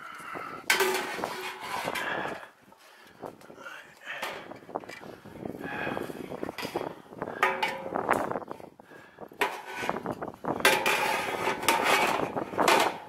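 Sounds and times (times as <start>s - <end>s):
metal knocks on ladder rungs: 7.4s - 8.0s, 10.6s - 13.0s.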